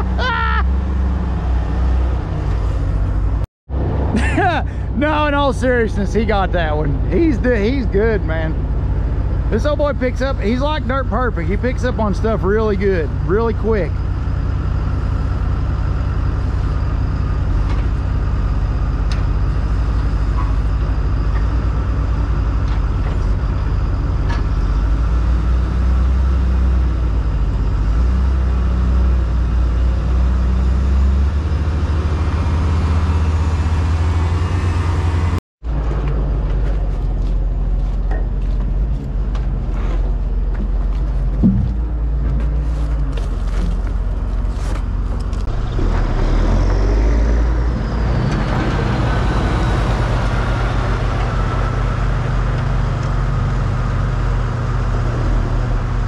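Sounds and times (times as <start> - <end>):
heavy vehicle engine rumbling: 0.0 - 56.0.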